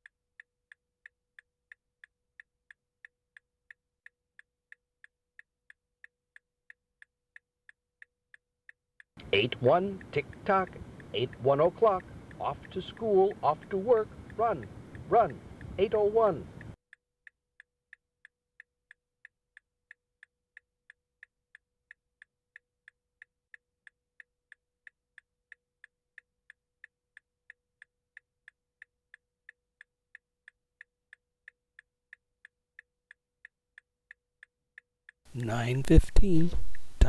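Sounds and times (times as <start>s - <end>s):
clock ticking: 0.0s - 37.0s
faint steady hum: 9.2s - 16.8s, 35.3s - 37.0s.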